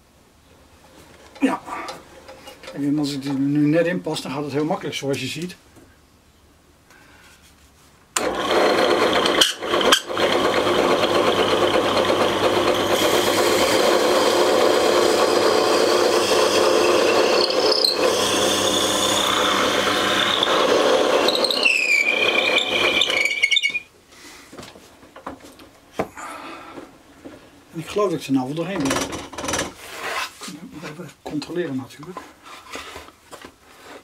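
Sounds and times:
drill press boring wood: 0:08.2 - 0:23.8
drill bit squealing: 0:08.2 - 0:23.9.

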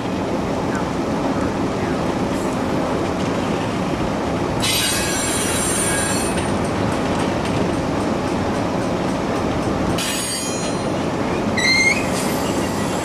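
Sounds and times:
train wheels on rail: 0:00.0 - 0:13.0
high-pitched wheel squeal: 0:11.6 - 0:13.0.

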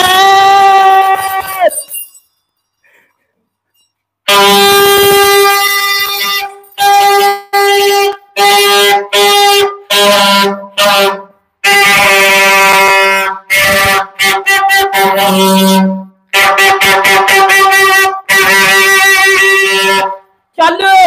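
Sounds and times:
horn blasts: 0:04.3 - 0:20.3.

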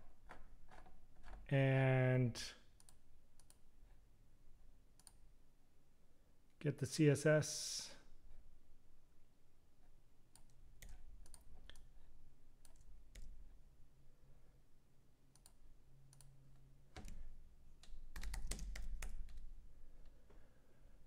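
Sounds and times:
computer mouse clicks: 0:02.8 - 0:03.6, 0:05.0 - 0:05.2, 0:10.3 - 0:12.0, 0:15.3 - 0:16.3
keyboard typing: 0:10.3 - 0:13.4, 0:15.3 - 0:16.4, 0:17.0 - 0:19.5.

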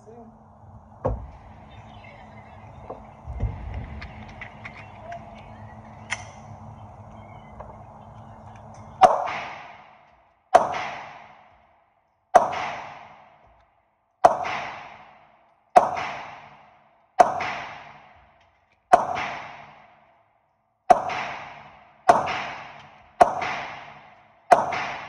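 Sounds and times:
pistol shots echoing: 0:09.0 - 0:11.6, 0:12.3 - 0:13.5, 0:14.2 - 0:18.2, 0:18.9 - 0:19.9, 0:20.9 - 0:25.0.

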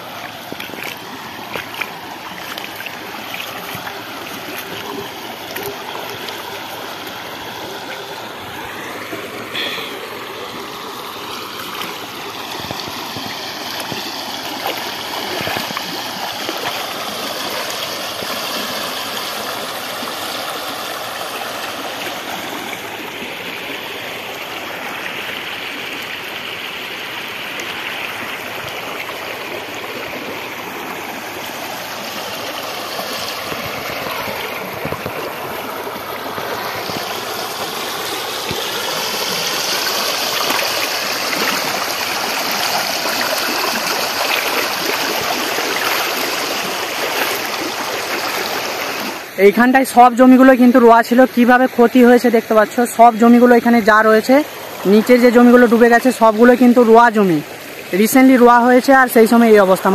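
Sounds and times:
floodwater rushing: 0:00.0 - 0:59.9.

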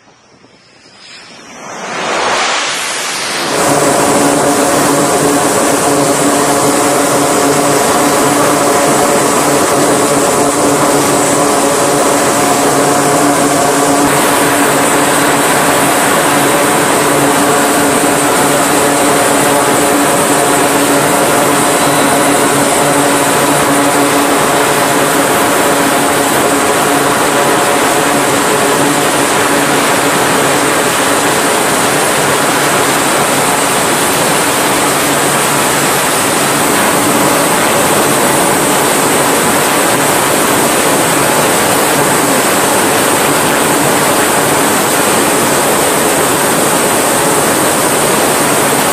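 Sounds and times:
turboprop engines droning: 0:00.0 - 0:48.9.

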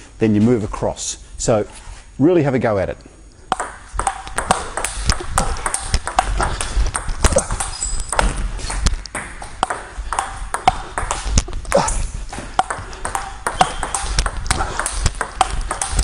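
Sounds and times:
table tennis ball clicking: 0:03.5 - 0:11.7, 0:12.6 - 0:16.0.

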